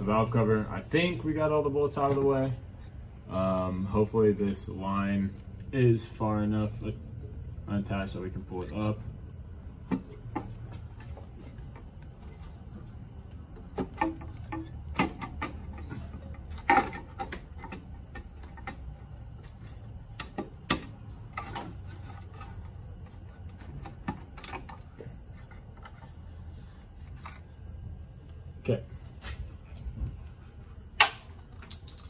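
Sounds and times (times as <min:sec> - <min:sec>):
metal clicks and knocks: 0:13.6 - 0:18.9.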